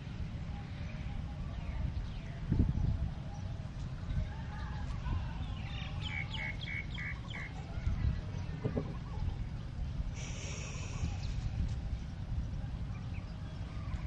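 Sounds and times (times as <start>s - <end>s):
bird chirping: 5.4s - 12.2s.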